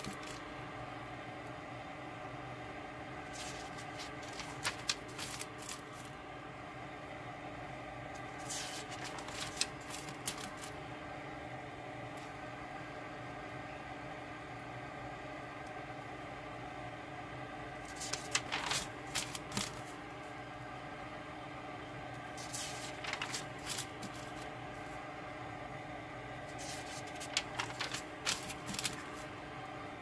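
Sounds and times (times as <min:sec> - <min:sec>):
notebook pages turning: 0:00.0 - 0:00.4, 0:03.3 - 0:06.1, 0:08.4 - 0:10.7, 0:17.9 - 0:19.9, 0:22.4 - 0:24.5, 0:26.5 - 0:29.3.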